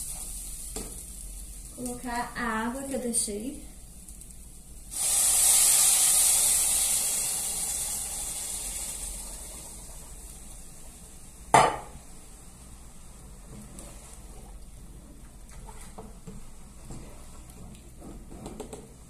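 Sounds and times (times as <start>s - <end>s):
water sizzling in hot pan: 0.0s - 12.4s.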